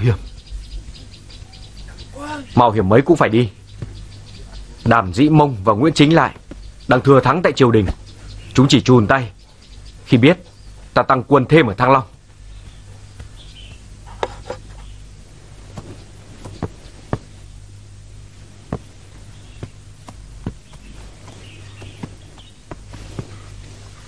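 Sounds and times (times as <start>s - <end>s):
steady low hum: 0.0s - 24.0s
footsteps: 3.6s - 5.1s, 12.0s - 17.6s, 18.4s - 24.0s.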